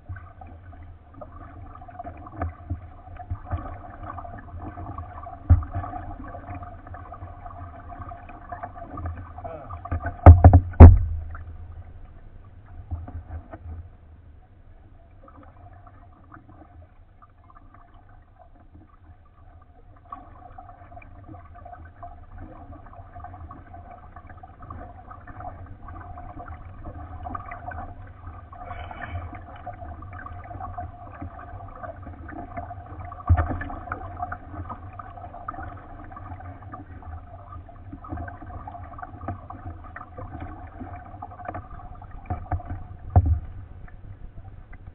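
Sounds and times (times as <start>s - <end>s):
faint steady hum: 0.0s - 44.9s
water lapping against hull: 0.0s - 44.9s
sharp knock: 10.3s - 11.3s.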